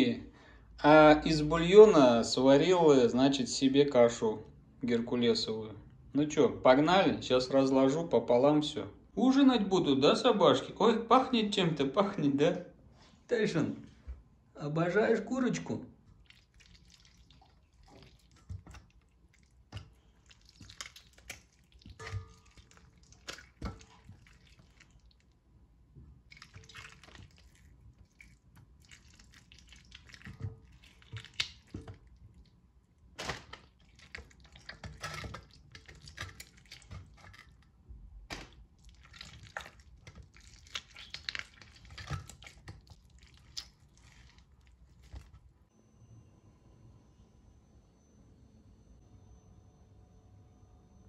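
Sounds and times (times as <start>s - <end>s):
wet squelching of meat: 16.0s - 25.4s, 26.2s - 45.6s.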